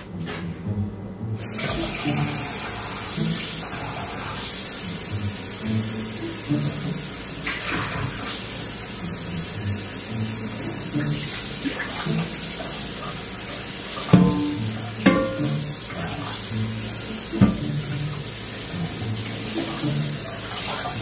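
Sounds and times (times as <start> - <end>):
water running into a sink: 1.4 - 21.0
tap turning on: 17.3 - 18.0.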